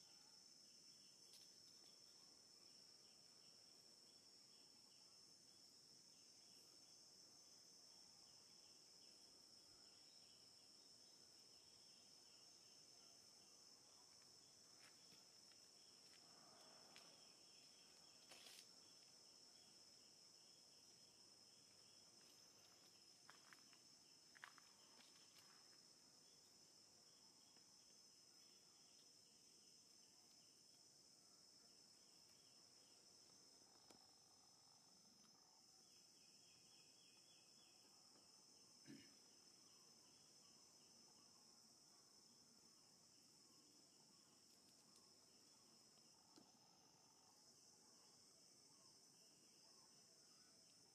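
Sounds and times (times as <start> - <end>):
insect chorus drone: 0.0 - 50.9.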